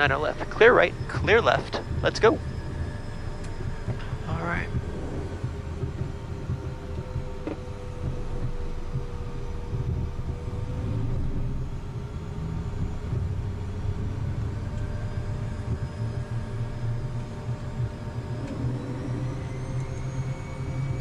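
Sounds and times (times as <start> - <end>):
jet engines rumbling with whine: 0.0 - 21.0.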